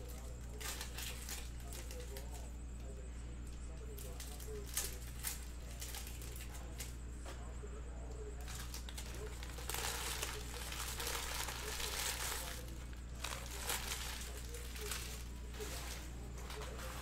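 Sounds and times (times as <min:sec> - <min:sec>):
plastic wrappers crinkling and tearing: 0:00.0 - 0:02.5, 0:03.9 - 0:06.9, 0:08.4 - 0:17.0.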